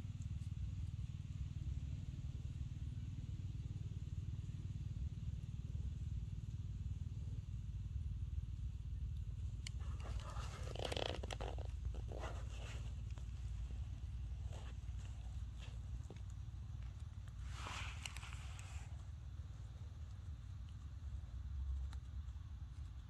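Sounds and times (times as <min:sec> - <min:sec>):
dry leaves rustling: 0:09.8 - 0:19.0.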